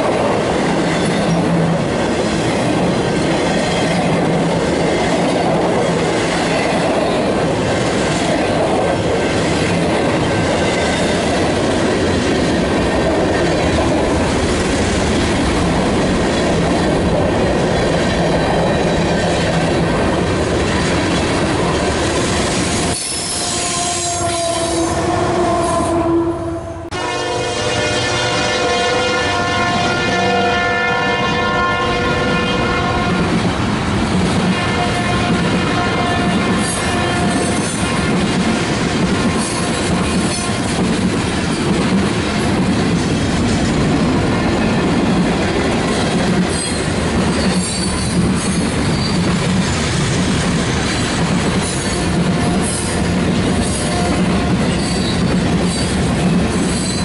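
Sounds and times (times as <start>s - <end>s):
clickety-clack over rail joints: 0.0s - 23.4s, 33.0s - 57.0s
squealing train wheels: 0.0s - 26.1s, 32.4s - 57.0s
freight train wheels on rails: 0.0s - 57.0s
locomotive horn: 23.1s - 33.4s, 34.5s - 37.8s.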